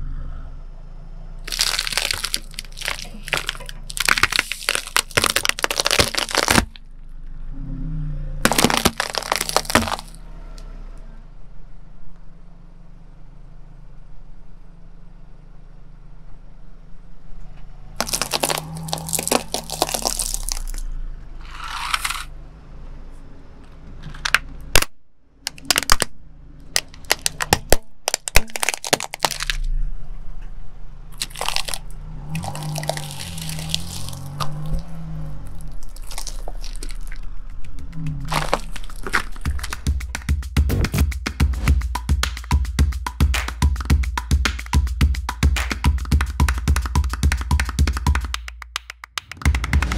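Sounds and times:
tyre crushing shells cracking: 1.5 - 6.8, 8.4 - 10.2, 18.0 - 20.8, 21.4 - 22.3, 24.0 - 29.6, 31.1 - 34.9, 35.6 - 40.5, 41.8 - 49.9.

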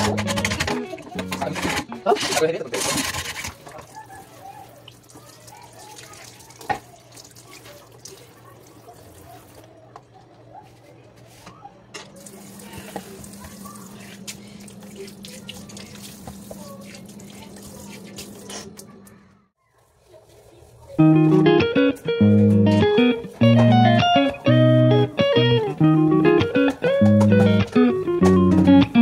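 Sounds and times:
tap water splashing into sink: 4.8 - 8.4, 12.1 - 18.9.

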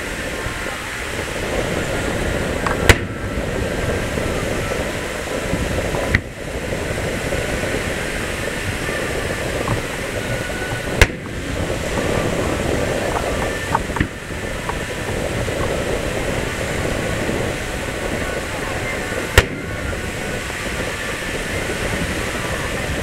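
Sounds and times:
fireworks bursting: 0.0 - 23.0
steady background noise: 0.0 - 23.0
fireworks clicks: 2.6 - 3.2, 13.1 - 14.8.

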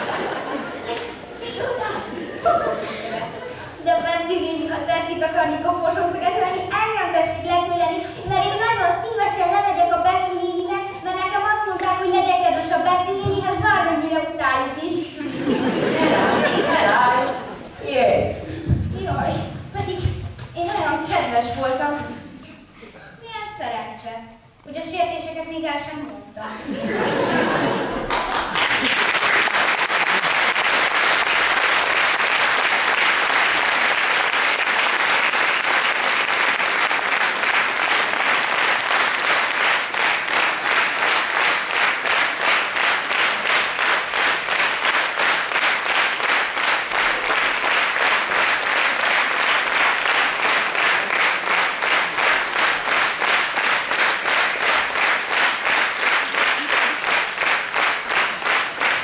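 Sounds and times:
audience applauding: 0.0 - 3.1, 27.0 - 59.0
rhythmic clapping in unison: 27.1 - 59.0.

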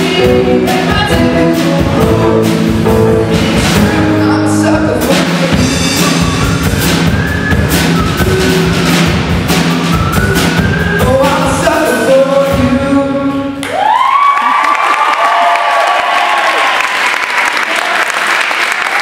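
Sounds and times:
person singing lead vocal: 0.0 - 6.5, 10.9 - 13.6
guitars: 0.0 - 13.2
drum kit beat: 0.0 - 14.0.

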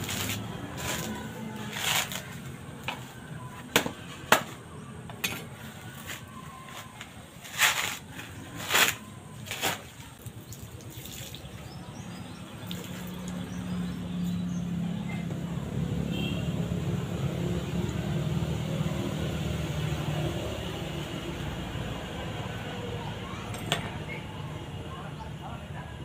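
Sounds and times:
vehicle engine hum: 0.0 - 26.0.

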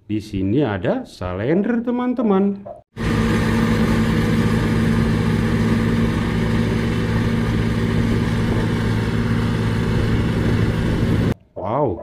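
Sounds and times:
diesel engine running: 3.0 - 11.4.

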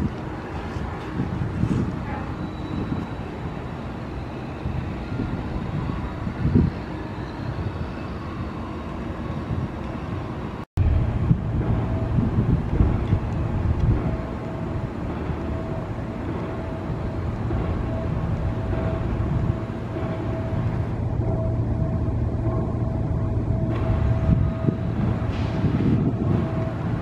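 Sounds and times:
diesel locomotive drone and rumble: 0.0 - 27.0.

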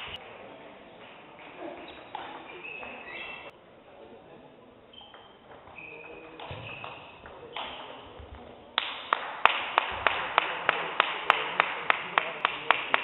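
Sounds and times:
crowd clapping: 8.8 - 13.0
loud single clap: 8.8 - 13.0.

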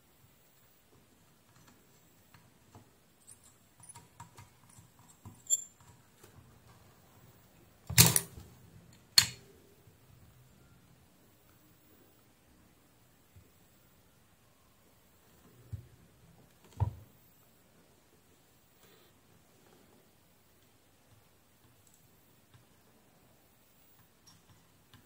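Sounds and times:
small tool clicks and handling: 9.2 - 9.4.

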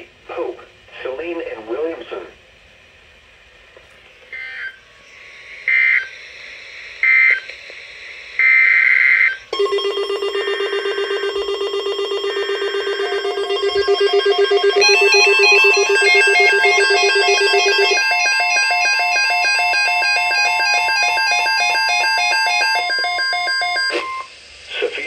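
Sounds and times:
digital data squawks: 10.8 - 24.3.

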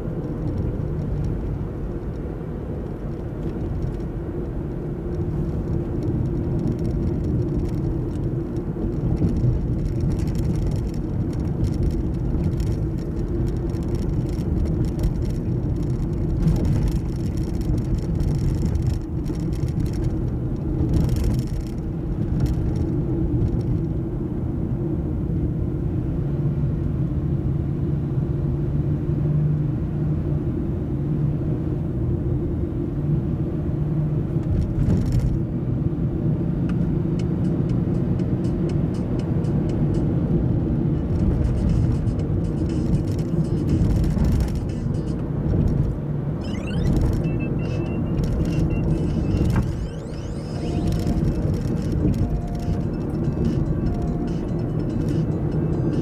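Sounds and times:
car engine and tyre rumble: 0.0 - 56.0
wind noise: 36.9 - 56.0
low hum: 40.3 - 56.0.

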